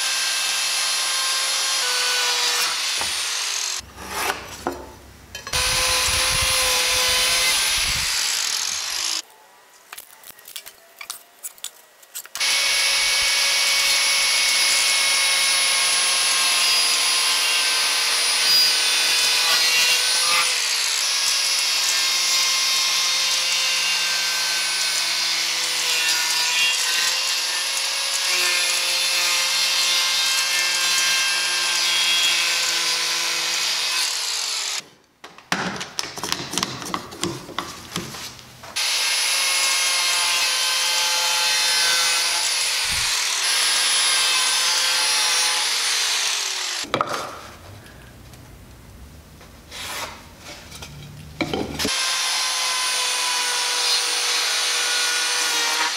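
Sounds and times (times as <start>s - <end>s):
angle grinder cutting wood: 0.0s - 4.4s, 5.5s - 9.2s, 12.4s - 34.9s, 38.8s - 46.9s, 51.8s - 55.9s.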